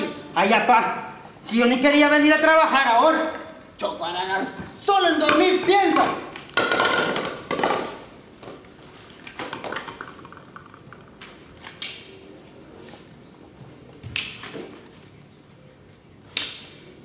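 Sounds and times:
tools knocking on stage floor: 5.2s - 8.0s.

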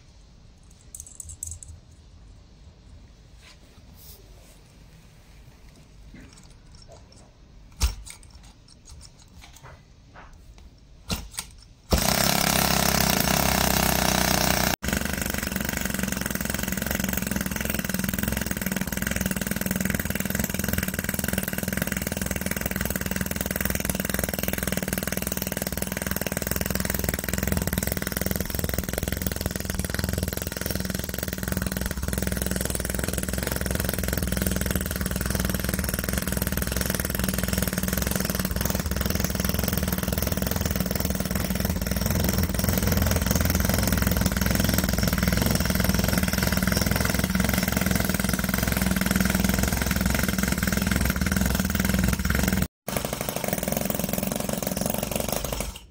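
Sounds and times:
handling clicks and knocks: 5.7s - 11.9s
small model engine running: 11.9s - 55.9s.

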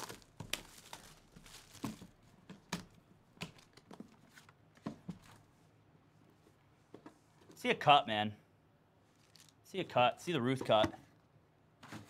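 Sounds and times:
plastic wrap crackling and tearing: 0.0s - 2.2s, 9.1s - 9.6s.

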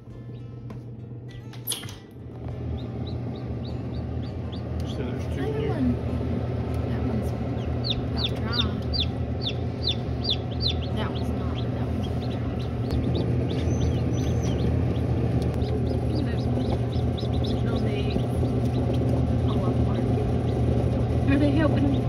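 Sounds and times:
steady low hum: 0.0s - 22.0s
chicks peeping: 2.6s - 5.7s, 7.5s - 22.0s.

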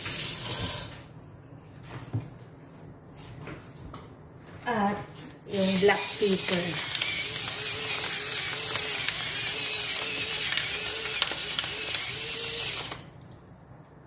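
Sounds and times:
pepper mill grinding: 5.7s - 12.9s.

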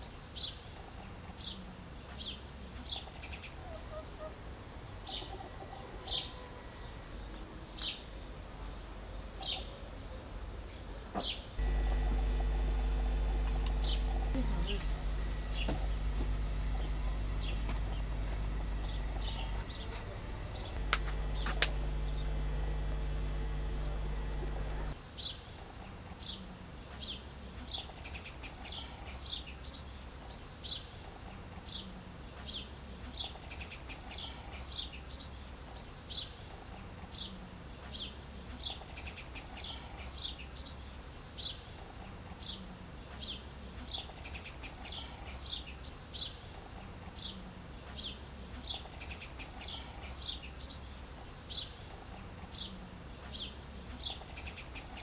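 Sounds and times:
small birds chirping: 0.0s - 55.0s
faint low hum: 11.6s - 25.0s.

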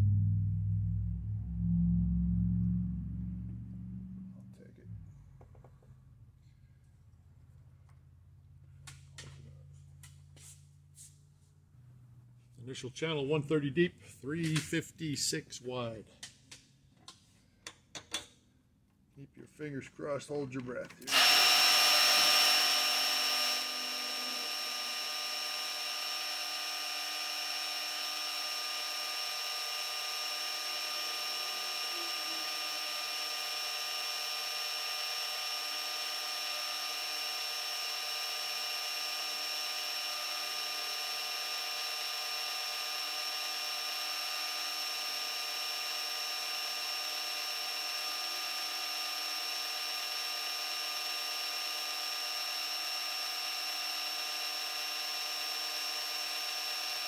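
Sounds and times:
milling machine cutting metal: 21.0s - 57.0s.

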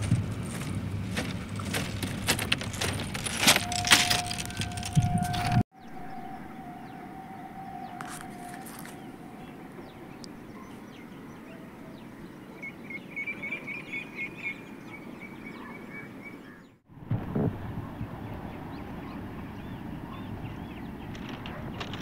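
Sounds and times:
outdoor background noise: 0.0s - 22.0s
bird chirping: 4.9s - 16.8s.

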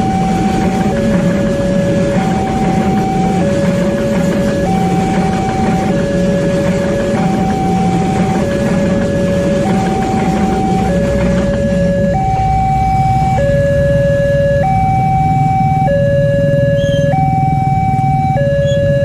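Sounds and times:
level crossing two-tone alarm: 0.0s - 19.0s
train rumble: 0.0s - 19.0s.

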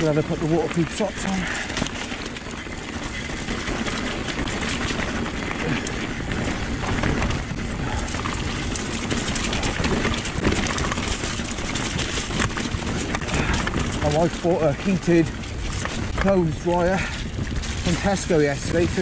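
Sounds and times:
bike clicks and rattles: 0.0s - 19.0s
bike tyres on wet trail: 0.0s - 19.0s.

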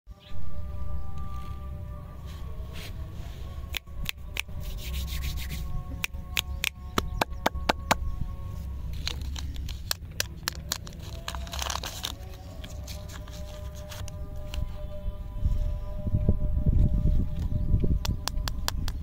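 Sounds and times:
faint background music: 0.1s - 19.0s
fingertips rubbing: 1.3s - 14.8s
sharp finger clicks: 3.7s - 4.6s, 6.0s - 8.0s.

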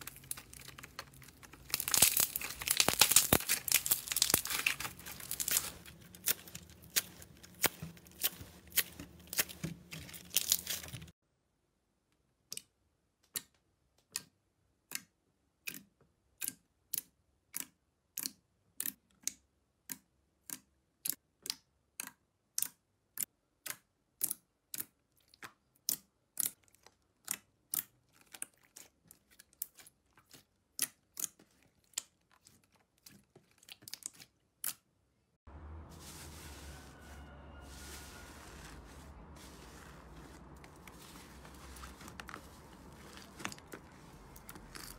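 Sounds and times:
slime crinkly crackling: 0.0s - 11.2s, 28.0s - 34.4s, 36.0s - 44.9s.

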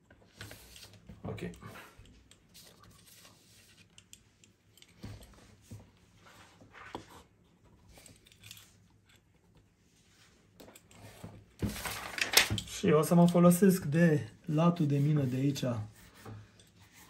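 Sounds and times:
pencil scratching on paper: 14.6s - 17.0s.

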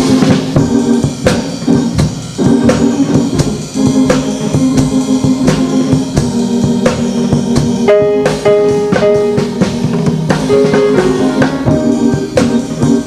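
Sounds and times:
band playing: 0.0s - 13.0s
drum kit beat: 0.0s - 13.0s.

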